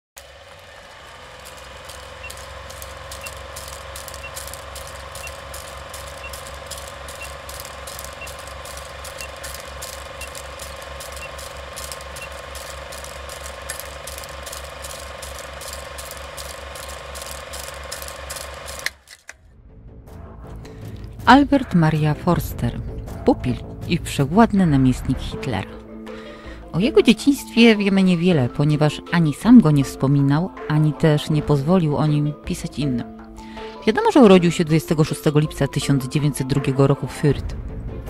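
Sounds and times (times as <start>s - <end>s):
projector hum: 0.2s - 18.9s
film projector clattering: 0.2s - 19.3s.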